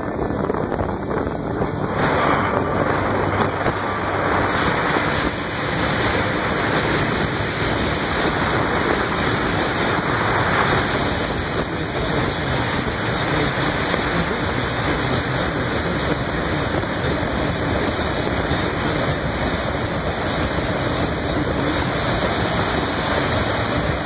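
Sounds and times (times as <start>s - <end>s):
choppy water: 0.0s - 24.0s
wind: 0.0s - 24.0s.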